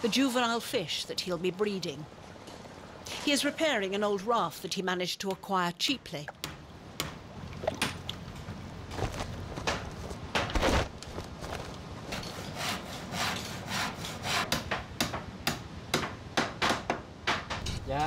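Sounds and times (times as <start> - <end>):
rasping scraping on wood: 12.2 - 14.6.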